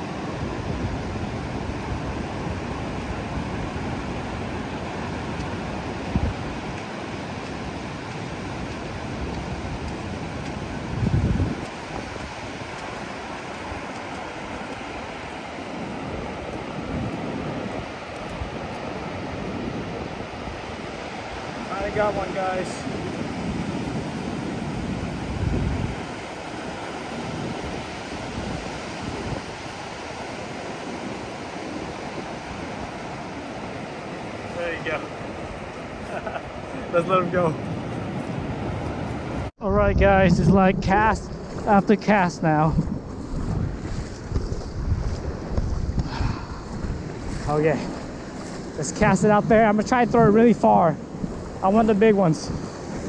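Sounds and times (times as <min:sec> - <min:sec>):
wind on the microphone: 0:00.0 - 0:33.8, 0:37.6 - 0:53.0
ocean surf washing on beach: 0:00.0 - 0:53.0.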